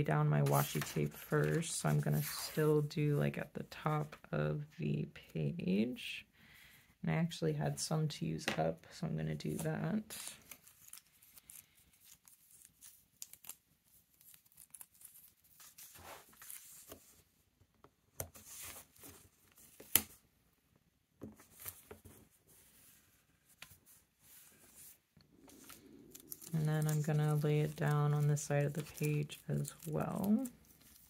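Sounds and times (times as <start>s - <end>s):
paper rustling: 0.4s - 2.6s, 10.2s - 17.3s, 21.2s - 31.0s
tape peeling: 10.6s - 16.9s, 24.8s - 31.0s.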